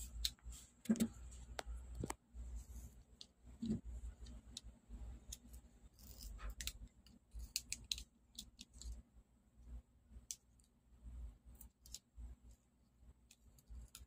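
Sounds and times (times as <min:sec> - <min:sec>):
knife scraping tape: 0:06.0 - 0:08.9.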